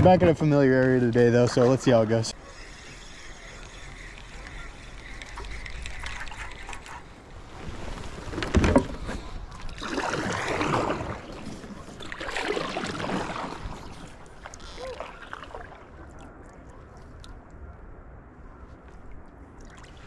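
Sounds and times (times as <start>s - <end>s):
paddle swishing and splashing water: 3.9s - 17.3s.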